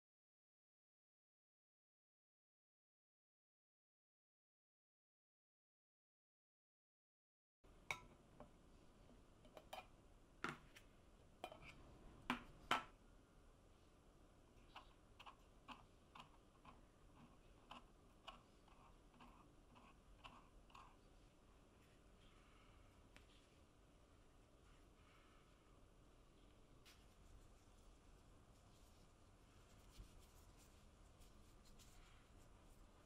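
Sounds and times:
metal spoon clinking and scraping: 11.4 - 11.8.

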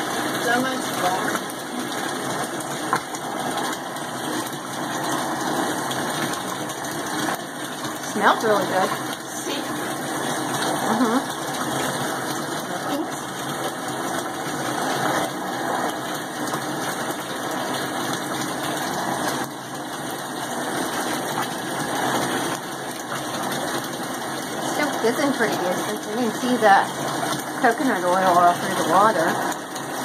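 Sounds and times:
bathtub pump humming: 0.0 - 30.0
bathwater churning: 0.0 - 30.0.

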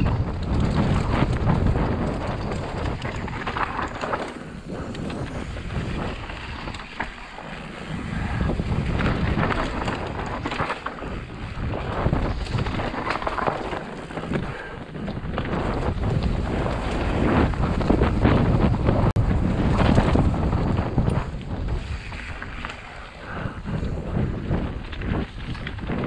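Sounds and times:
tyres on dirt and stones: 0.0 - 18.7
bike clicking and knocking: 0.0 - 26.0
wind rushing over microphone: 0.0 - 26.0.

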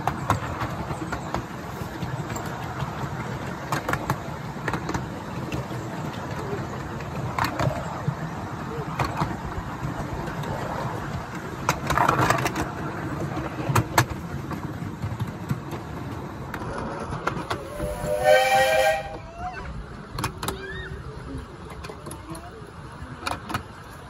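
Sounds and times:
coaches rumbling on rails: 0.0 - 24.0
steam locomotive whistle: 17.6 - 19.3.

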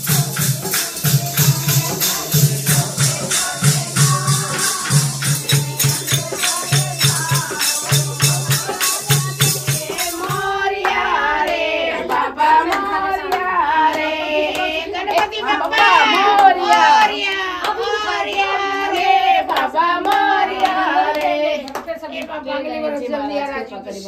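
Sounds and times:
rattling percussion over low beat: 0.0 - 16.1
hand claps: 0.0 - 22.4
women singing together: 0.0 - 24.0.

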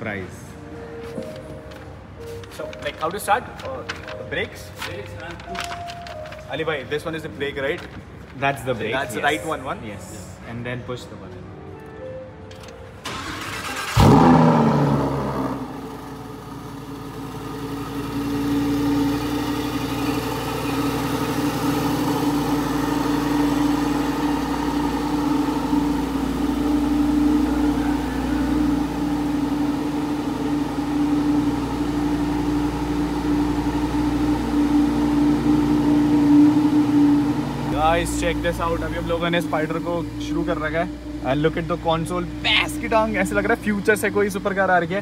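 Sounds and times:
sports car engine starting and idling: 12.5 - 45.0.

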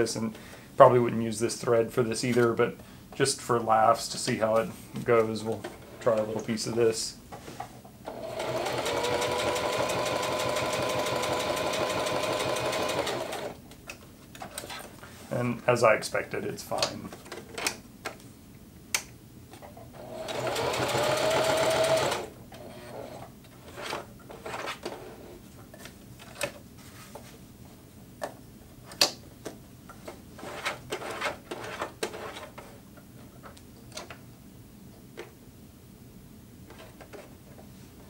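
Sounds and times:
sewing machine stitching: 8.1 - 13.6, 20.0 - 24.9.

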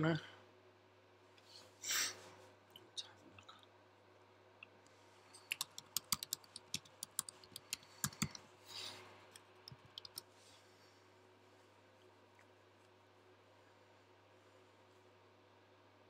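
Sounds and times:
keyboard keys tapping: 5.4 - 8.4, 9.6 - 10.2.

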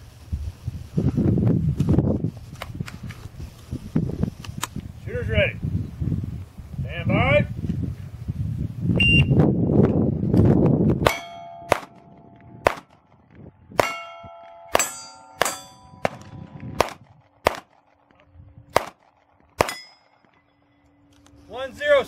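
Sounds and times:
shot timer beep: 9.0 - 9.4
handgun shots: 11.0 - 13.0, 13.8 - 17.9, 18.7 - 20.2
steel plates ringing: 11.1 - 12.5, 13.8 - 16.2, 19.6 - 21.0.

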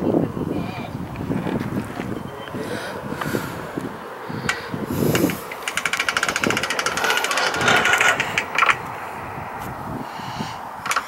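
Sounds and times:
fishing reel clicking: 5.2 - 8.8.

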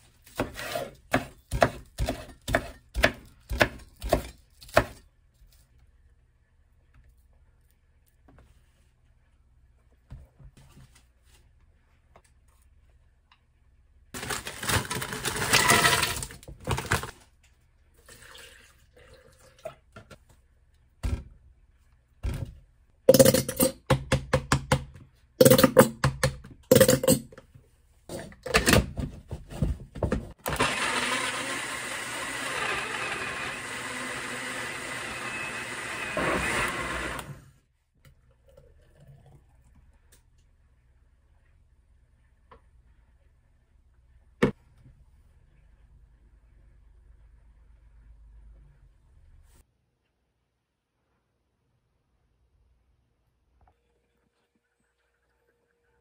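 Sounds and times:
blender running: 30.4 - 37.5.

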